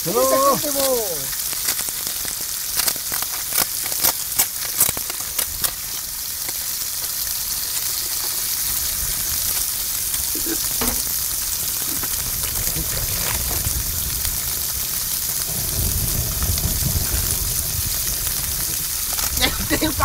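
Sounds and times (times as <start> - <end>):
food sizzling in a pan: 0.0 - 20.0
sharp clicks and pops: 1.4 - 6.7.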